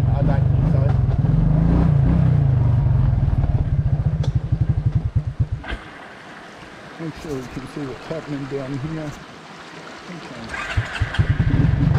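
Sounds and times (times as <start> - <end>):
quad bike engine idling: 2.6 - 5.9, 10.5 - 11.9
creek trickling: 3.0 - 11.9.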